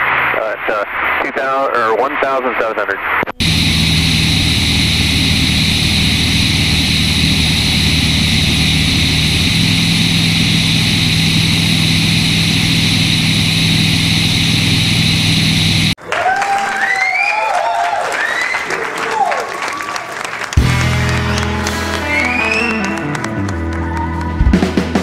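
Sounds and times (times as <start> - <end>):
air rushing: 3.4 - 16.0
propeller aircraft engine drone: 3.4 - 16.0.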